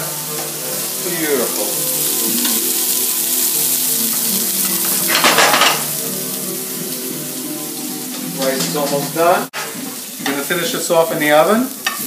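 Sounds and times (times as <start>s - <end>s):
fish sizzling in a frying pan: 0.0s - 12.0s.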